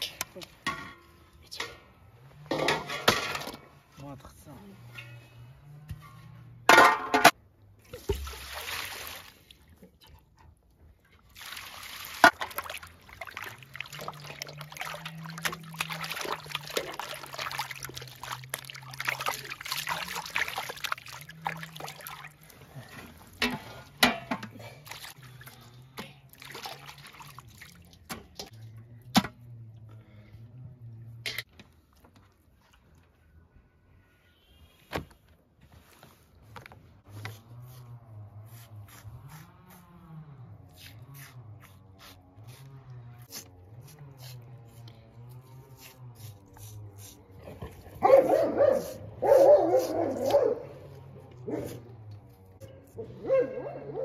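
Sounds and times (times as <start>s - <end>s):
metal bowl clanks: 0.6s - 1.9s, 2.5s - 3.7s, 6.0s - 7.4s, 23.3s - 24.8s
water sloshing in steel basin: 4.9s - 29.6s
water pouring through colander: 11.2s - 23.8s, 24.7s - 28.6s.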